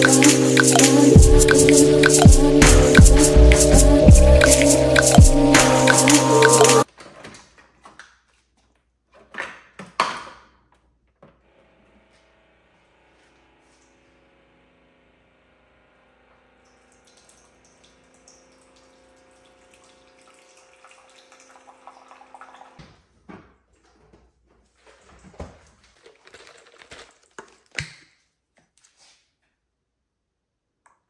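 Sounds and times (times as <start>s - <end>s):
coffee trickling into mug: 25.8s - 27.8s.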